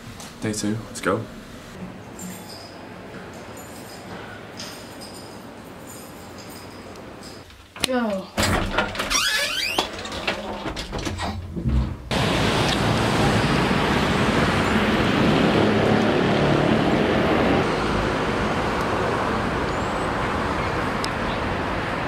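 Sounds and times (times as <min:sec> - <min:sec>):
road traffic noise: 0:12.1 - 0:22.0.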